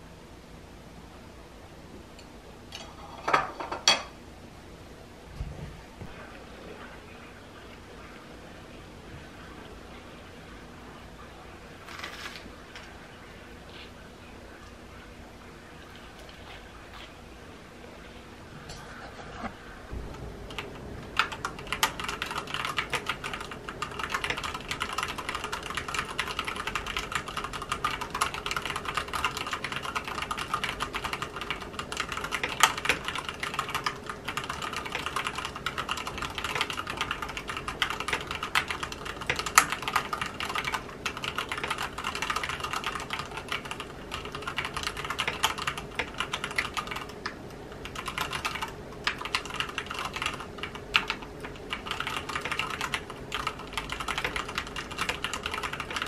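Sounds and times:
mechanical keyboard typing: 20.5 - 56.0.

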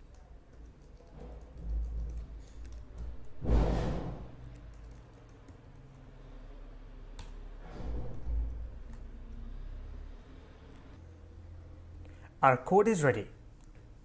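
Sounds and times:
computer keyboard typing: 0.0 - 3.4, 4.4 - 6.2, 7.2 - 7.4.

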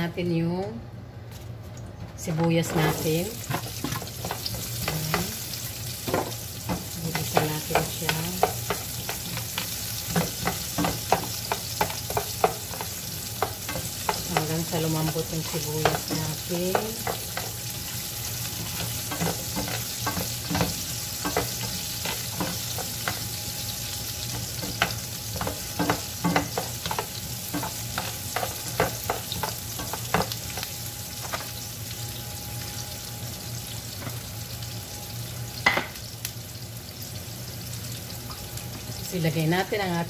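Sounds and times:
low steady hum: 0.0 - 40.0
onions sizzling in frying pan: 2.4 - 40.0
spatula scraping and tapping pan: 6.1 - 23.4, 24.2 - 31.5.

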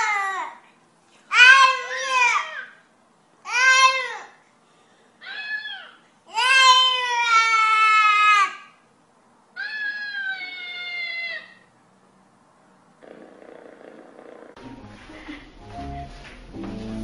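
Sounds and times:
baby crying: 1.3 - 2.8, 5.2 - 8.6.

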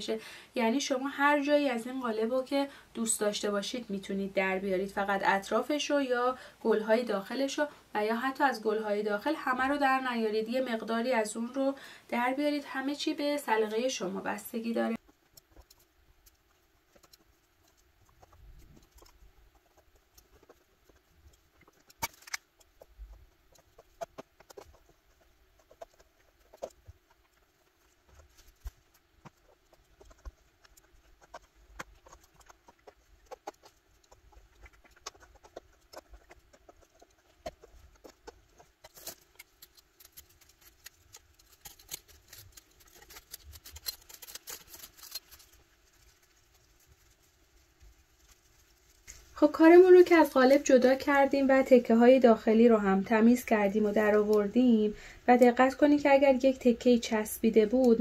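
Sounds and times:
hot knife scratching fabric: 15.0 - 47.0.

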